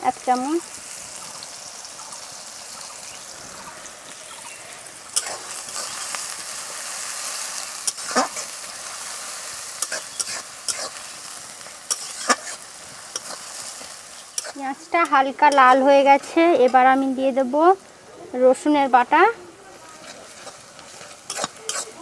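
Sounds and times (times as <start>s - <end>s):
onions sizzling in hot oil: 0.0s - 22.0s
spatula scraping metal pan: 20.1s - 22.0s.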